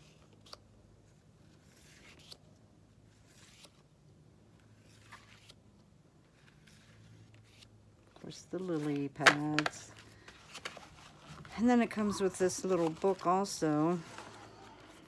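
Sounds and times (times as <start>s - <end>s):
paper postcards shuffling: 3.1s - 3.9s, 4.7s - 15.0s.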